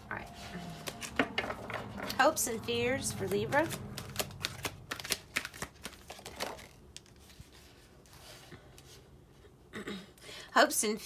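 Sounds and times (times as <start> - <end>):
card rustling: 0.3 - 8.9
cards being shuffled: 0.7 - 9.0.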